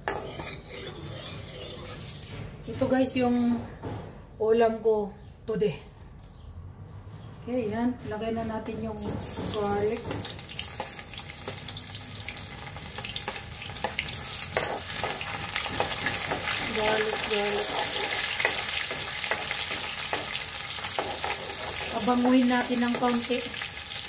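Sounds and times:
metal ladle scraping wok: 0:00.0 - 0:03.7, 0:13.7 - 0:22.2
garlic sizzling in oil: 0:09.2 - 0:24.0.

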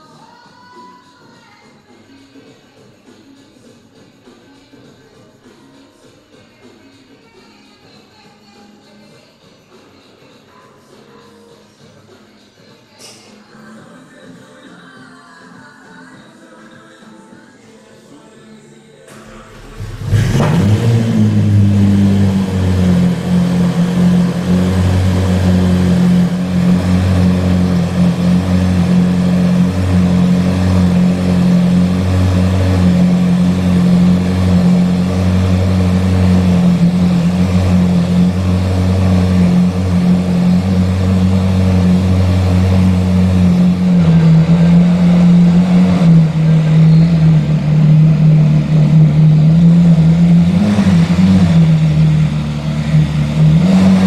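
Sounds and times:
car engine idling: 0:19.1 - 0:54.0.

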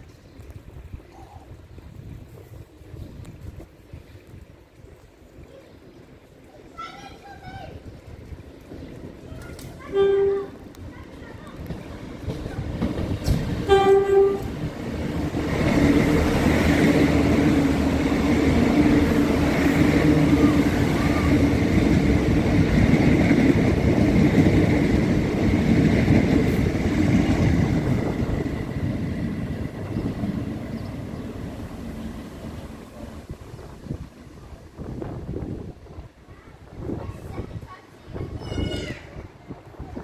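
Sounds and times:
train passing with rumbling wheels: 0:05.8 - 0:40.0
train horn toot: 0:09.8 - 0:10.6, 0:13.6 - 0:14.6.

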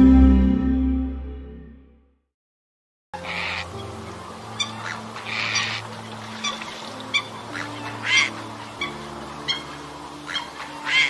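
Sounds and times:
coots honking: 0:03.2 - 0:11.0
soft background music: 0:03.2 - 0:11.0.

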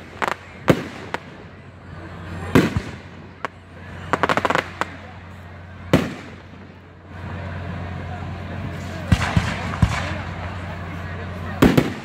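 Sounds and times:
fireworks bangs: 0:00.0 - 0:06.9, 0:08.7 - 0:12.0
fireworks crackling: 0:00.0 - 0:12.0.

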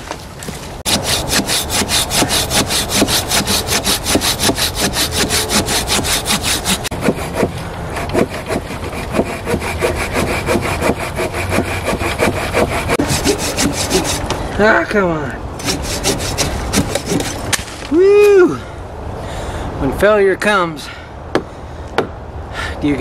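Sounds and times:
hand saw cutting through log: 0:00.8 - 0:14.4, 0:15.6 - 0:17.5.

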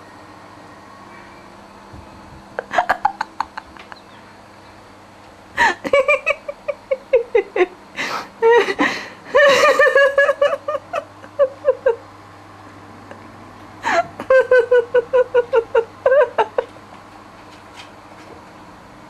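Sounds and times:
person giggling: 0:02.6 - 0:04.2, 0:05.6 - 0:12.1, 0:13.1 - 0:16.8.

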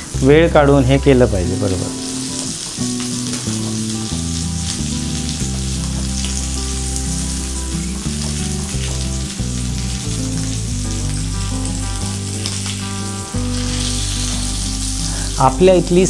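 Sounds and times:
fish sizzling in oil: 0:00.0 - 0:16.0
low background music tones: 0:00.0 - 0:16.0.

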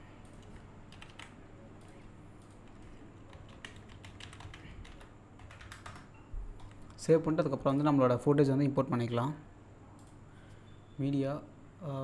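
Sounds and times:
typing on a keyboard: 0:00.3 - 0:06.8.

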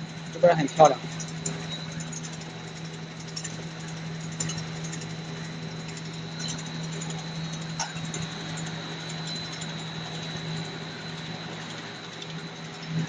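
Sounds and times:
machine hum with high whine: 0:00.0 - 0:13.0
pellets ticking on conveyor: 0:00.0 - 0:13.0.

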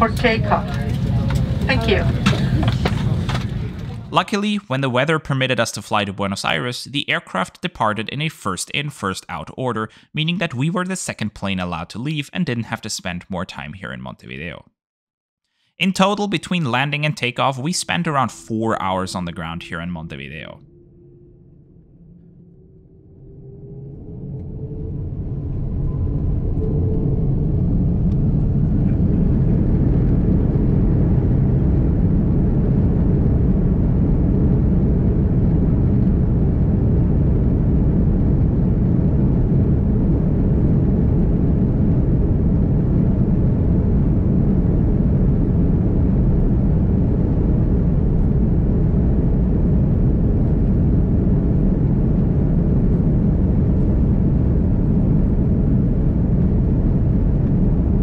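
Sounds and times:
jet engines rumbling in cabin: 0:00.0 - 0:05.1, 0:22.8 - 0:58.0.

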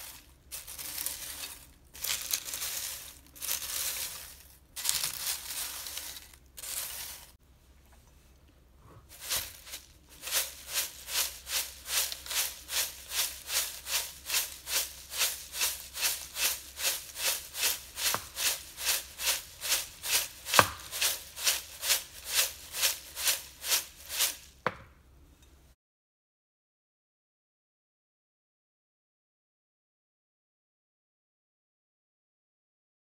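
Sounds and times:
corn flakes rattling in glass bowl: 0:09.1 - 0:24.5.

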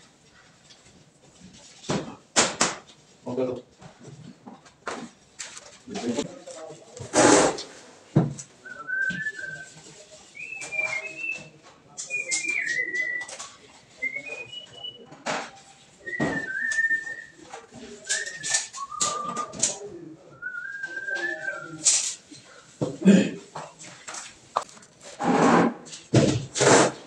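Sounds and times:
person whistling a tune: 0:08.7 - 0:09.7, 0:16.0 - 0:17.4, 0:18.0 - 0:19.6, 0:20.4 - 0:21.8.

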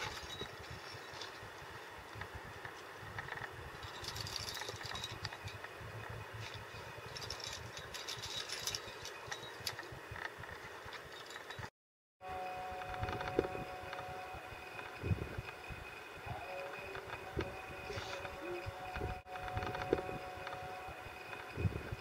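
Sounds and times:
metallic carabiners clinking: 0:00.0 - 0:01.5, 0:03.2 - 0:11.7
wind buffeting microphone: 0:14.8 - 0:22.0.

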